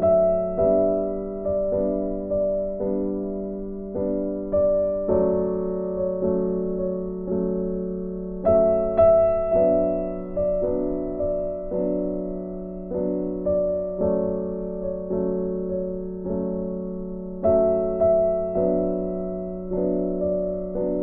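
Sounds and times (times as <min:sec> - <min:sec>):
slow gentle piano tune: 0:00.0 - 0:21.0.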